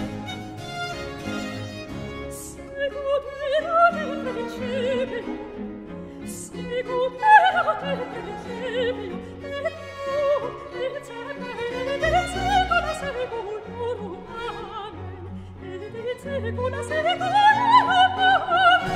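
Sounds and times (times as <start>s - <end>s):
orchestral strings: 0.0s - 18.9s.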